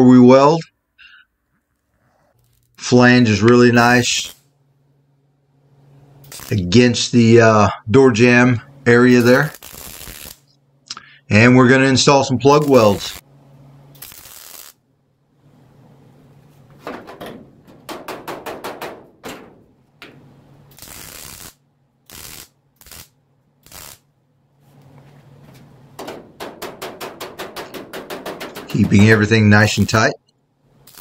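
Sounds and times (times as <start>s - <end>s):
welding arc crackle: 1.8s - 2.8s, 3.8s - 4.5s, 6.2s - 6.8s, 9.0s - 10.6s, 12.4s - 13.3s, 13.9s - 14.8s, 20.7s - 24.1s, 27.6s - 30.2s, 30.8s - 31.0s.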